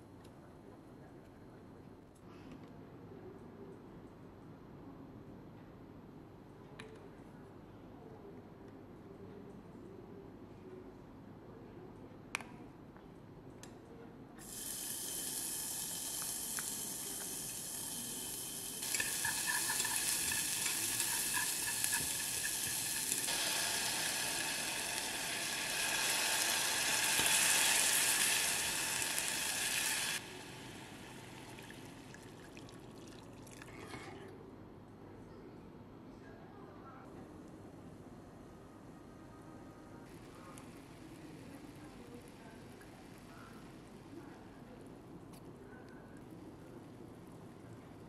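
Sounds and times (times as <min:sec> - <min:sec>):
food sizzling in hot oil: 0:14.4 - 0:32.1.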